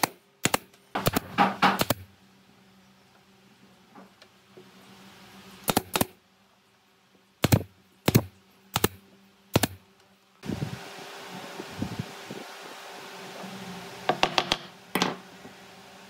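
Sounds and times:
nail gun firing into wood: 0:00.0 - 0:02.1, 0:05.6 - 0:06.2, 0:07.4 - 0:09.8
fan hissing: 0:10.4 - 0:16.0.

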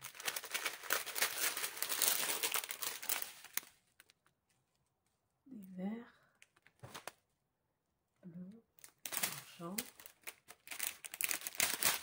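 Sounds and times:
plastic bags crinkling: 0:00.0 - 0:04.3, 0:08.8 - 0:12.0.

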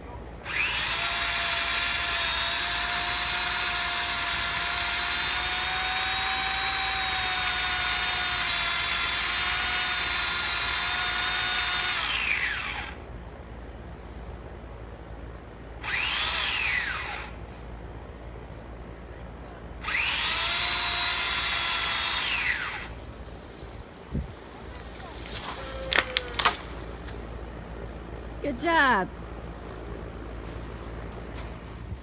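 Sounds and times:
power saw cutting wood: 0:00.4 - 0:13.0, 0:15.8 - 0:17.4, 0:19.8 - 0:23.0.

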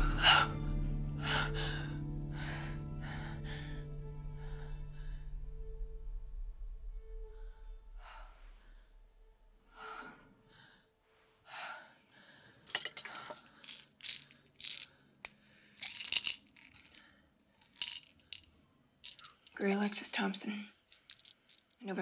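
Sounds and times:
woman breathing heavily: 0:00.0 - 0:05.4, 0:07.2 - 0:16.0
low music drone: 0:00.0 - 0:10.6
plastic pill bottles rattling: 0:12.7 - 0:15.0, 0:15.7 - 0:19.6, 0:20.8 - 0:21.9.

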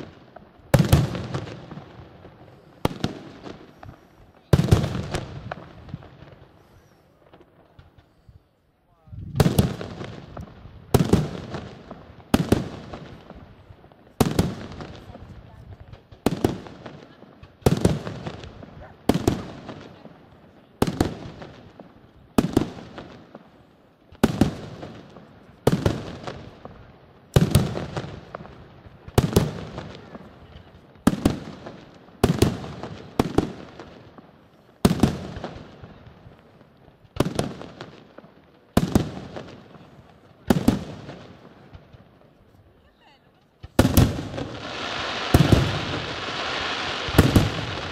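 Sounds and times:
firework shells bursting: 0:43.6 - 0:47.9.

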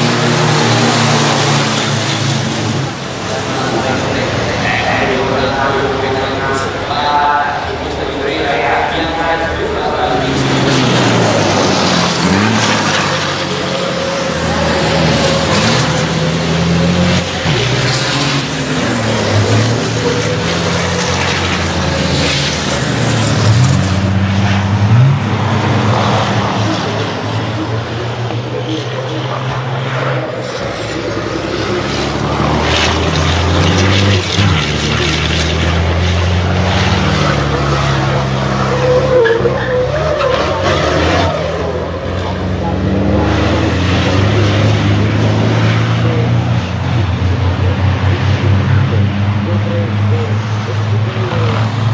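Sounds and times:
racing truck diesel engines: 0:00.0 - 0:51.9
tyre squeal: 0:38.6 - 0:41.5.

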